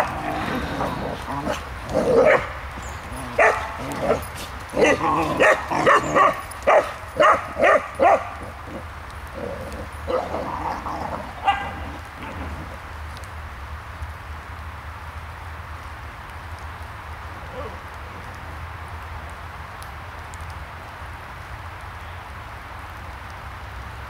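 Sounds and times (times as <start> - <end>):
puppies yapping: 0.0 - 12.8.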